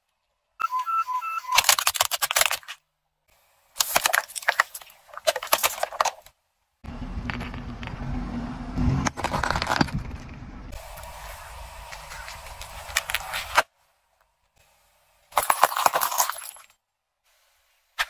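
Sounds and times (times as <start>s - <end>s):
low rumble: 6.8s - 12.6s.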